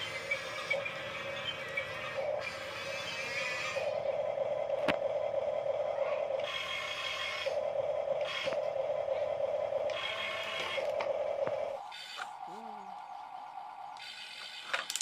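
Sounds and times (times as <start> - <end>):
toy excavator motors whirring: 0.0 - 15.0.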